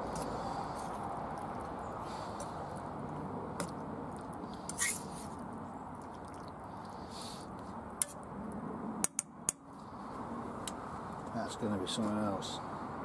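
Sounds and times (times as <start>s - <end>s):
curry sauce squelching and bubbling: 0.0s - 7.2s.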